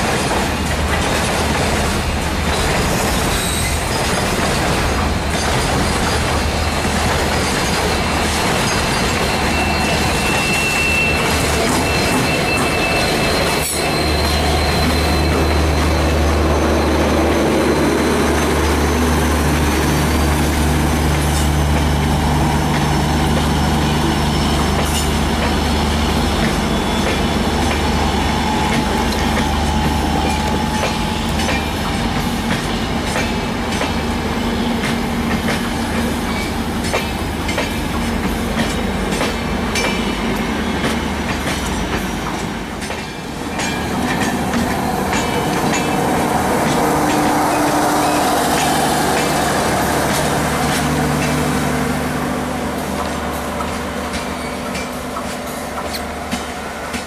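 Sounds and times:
train wheels clicking over rail joints: 0.0s - 51.9s, 52.8s - 57.0s
diesel locomotive engine drone: 0.0s - 57.0s
wheel squeal: 7.7s - 18.9s.

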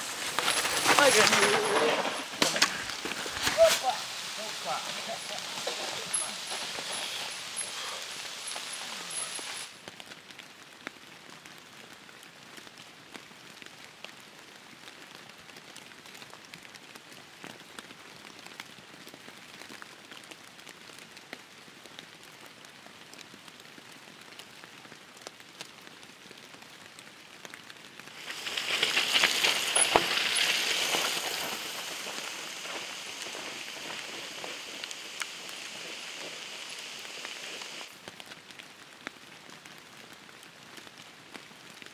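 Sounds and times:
bike tyres rolling through mud: 0.0s - 10.6s, 26.4s - 41.9s.

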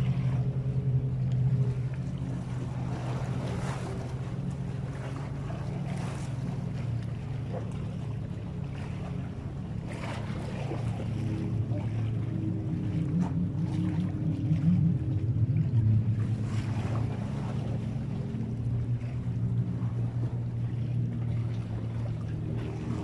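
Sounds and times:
boat engine humming: 0.0s - 23.0s
wind on microphone: 10.0s - 17.7s.

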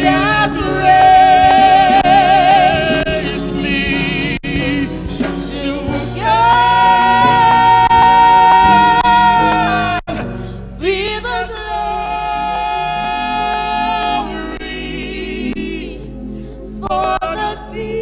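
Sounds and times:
instrumental accompaniment: 0.0s - 11.1s
gospel singing with vibrato: 0.0s - 18.0s.

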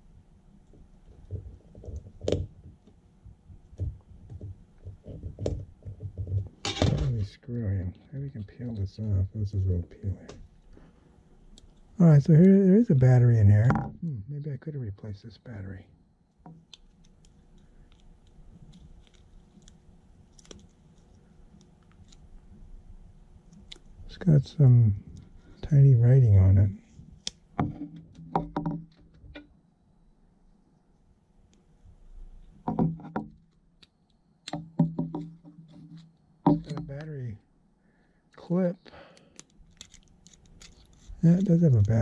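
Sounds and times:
small watch parts clicking: 39.2s - 42.0s.

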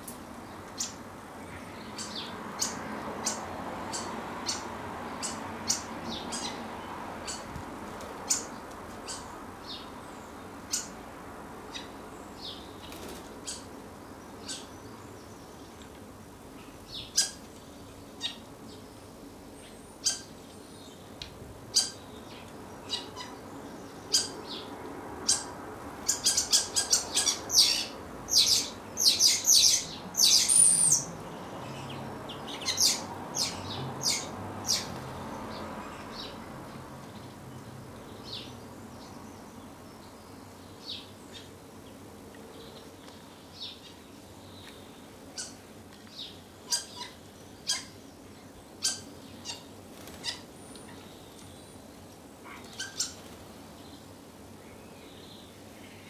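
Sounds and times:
steady background noise: 0.0s - 56.0s
birds chirping: 0.5s - 11.0s, 11.6s - 56.0s.

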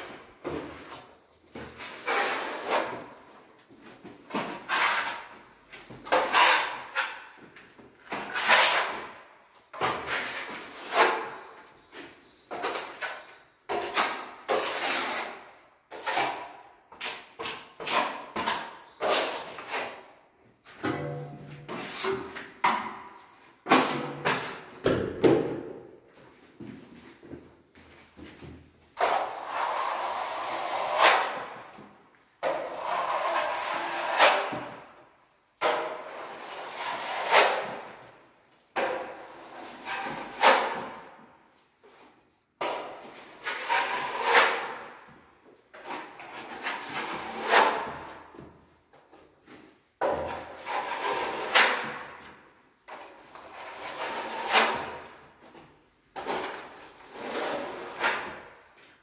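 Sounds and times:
blade scraping wall: 29.0s - 31.6s, 32.4s - 34.9s, 43.1s - 44.9s, 53.2s - 55.2s, 56.2s - 58.6s.

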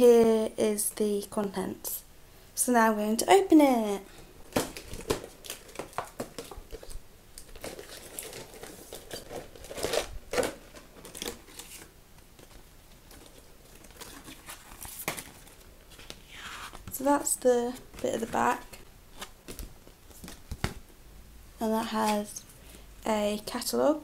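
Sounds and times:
plastic packaging crinkling: 4.4s - 17.0s.

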